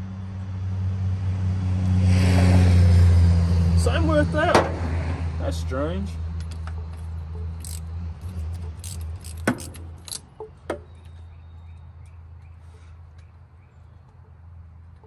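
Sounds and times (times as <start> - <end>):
socket wrench ratcheting: 6.4 - 10.5
metal hand tools clinking: 7.4 - 10.3.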